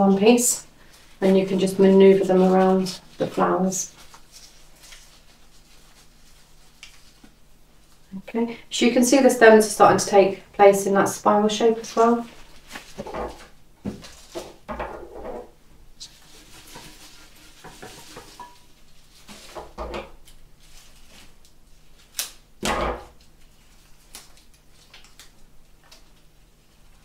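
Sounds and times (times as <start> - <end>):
leaves and stems rustling: 0.1 - 8.1, 11.5 - 14.6, 16.0 - 22.4.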